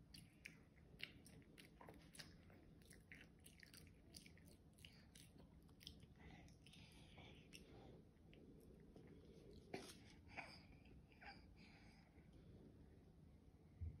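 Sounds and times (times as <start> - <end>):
toddler chewing: 0.1 - 7.7.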